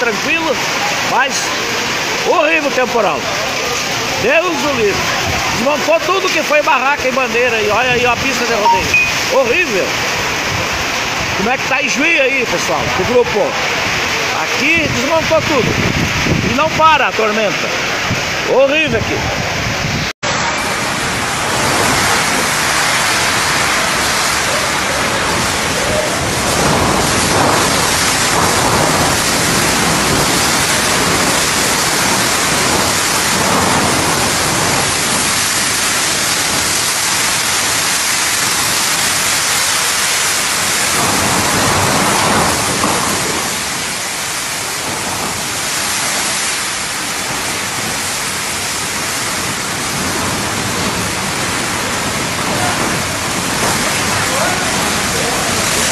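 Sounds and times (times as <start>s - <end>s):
heavy rain on metal roof: 0.0s - 55.9s
wind gusts: 0.0s - 55.9s.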